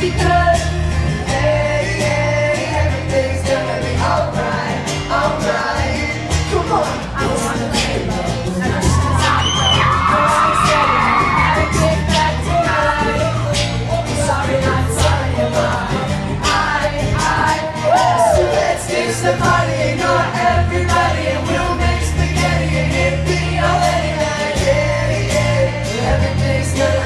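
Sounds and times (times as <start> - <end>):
held bass notes: 0.0 - 27.0
keyboards: 0.0 - 27.0
man singing: 0.0 - 27.0
steady drumbeat: 6.3 - 27.0.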